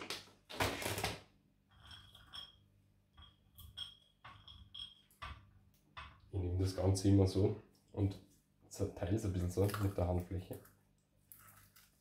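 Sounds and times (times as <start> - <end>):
walnut pieces clinking on a plate: 1.7 - 5.4.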